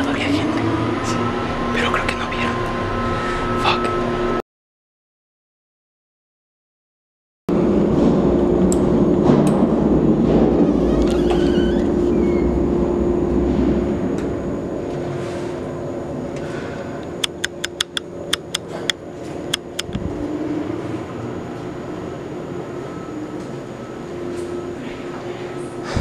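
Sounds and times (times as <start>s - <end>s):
elevator machinery humming: 0.0s - 4.4s, 7.5s - 26.0s
sharp clicks: 17.0s - 20.0s.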